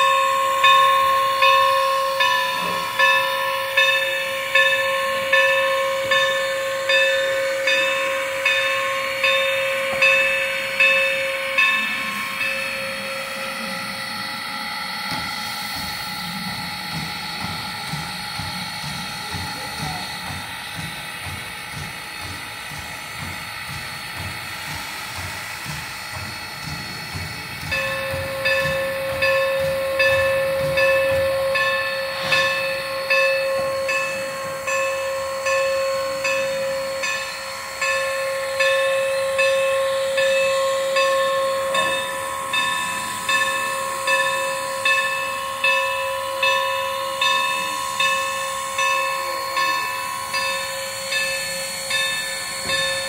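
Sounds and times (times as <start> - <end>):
rhythmic pulse: 0.0 - 53.0
steam hissing: 0.0 - 53.0.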